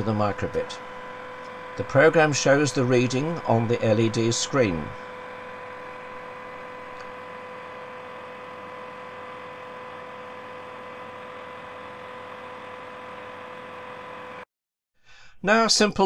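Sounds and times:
hair dryer running: 0.0s - 14.5s.

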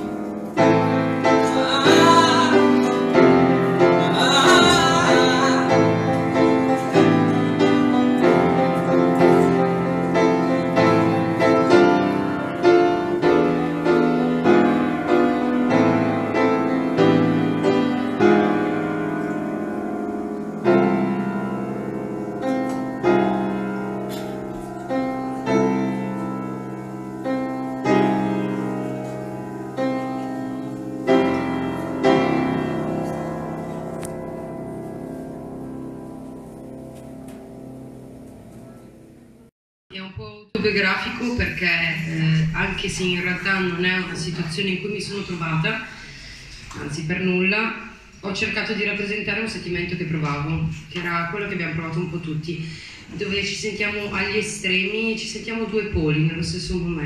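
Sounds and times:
grand piano chords and notes: 0.0s - 39.5s.

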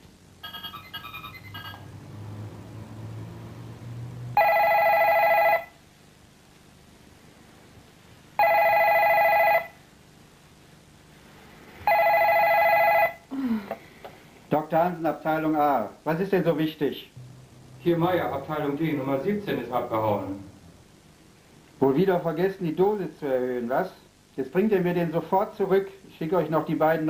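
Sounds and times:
short electronic beeps: 0.4s - 1.9s
telephone ringing: 0.4s - 2.0s, 4.4s - 5.8s, 8.4s - 9.8s, 11.8s - 13.2s.

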